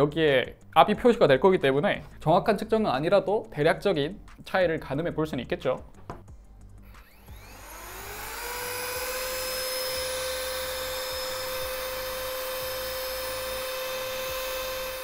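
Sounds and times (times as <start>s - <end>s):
electric blower motor whine: 6.8s - 15.0s.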